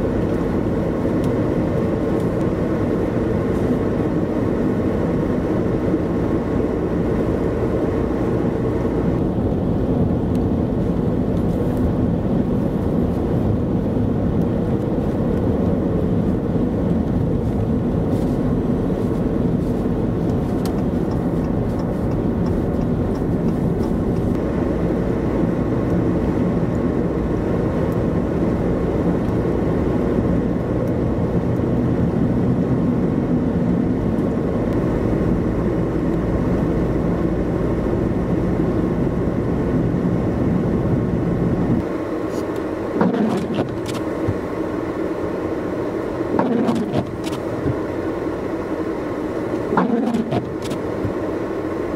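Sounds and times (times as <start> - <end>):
vehicle road and engine noise: 0.0 - 51.9
tyres on packed snow: 16.2 - 24.5.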